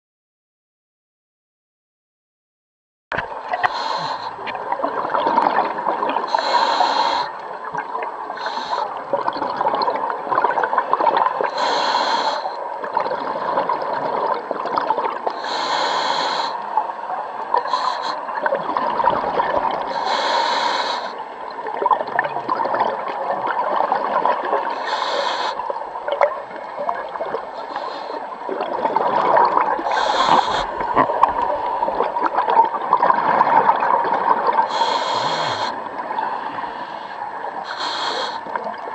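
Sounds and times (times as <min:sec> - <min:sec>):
bubbling of exhaled air: 0:03.4 - 0:11.6, 0:17.6 - 0:38.9
regulator inhalation hiss: 0:03.6 - 0:04.4, 0:06.3 - 0:07.4, 0:08.4 - 0:09.0, 0:11.5 - 0:12.6, 0:15.4 - 0:16.7, 0:17.6 - 0:18.3, 0:19.9 - 0:21.2, 0:24.7 - 0:25.6, 0:27.5 - 0:28.3, 0:29.8 - 0:30.9, 0:34.7 - 0:38.5.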